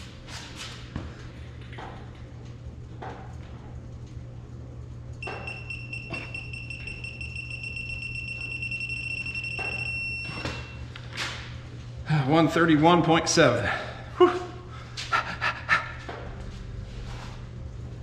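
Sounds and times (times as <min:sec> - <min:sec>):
low steady hum: 0:00.0 - 0:18.0
high-pitched beep: 0:05.2 - 0:10.8.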